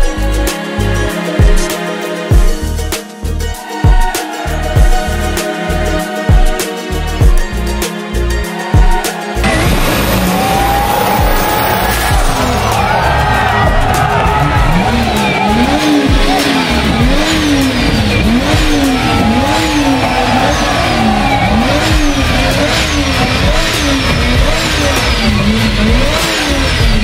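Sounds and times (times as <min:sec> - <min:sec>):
car engine revving: 0:09.4 - 0:27.0.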